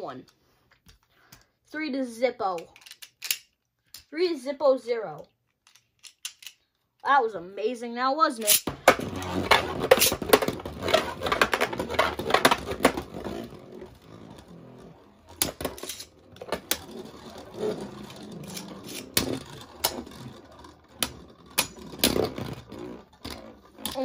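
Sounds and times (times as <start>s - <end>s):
spinning tops clacking together: 15.3s - 17.4s.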